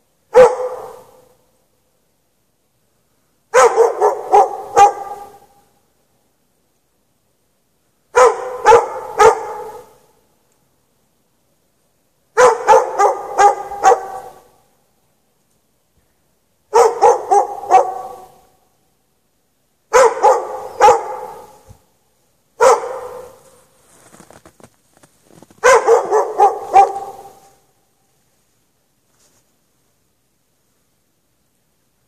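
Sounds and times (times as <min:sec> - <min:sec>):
dog barking sharply: 0:00.3 - 0:01.2, 0:03.6 - 0:05.6, 0:08.2 - 0:10.0, 0:12.4 - 0:14.5, 0:16.7 - 0:18.4, 0:19.9 - 0:21.7, 0:22.6 - 0:23.4, 0:25.6 - 0:27.6.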